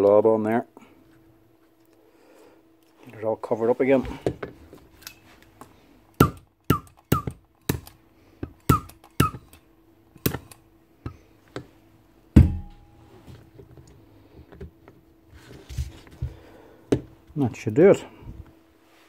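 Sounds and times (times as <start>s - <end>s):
faint steady hum: 0.0s - 19.0s
low thump: 12.4s - 12.9s.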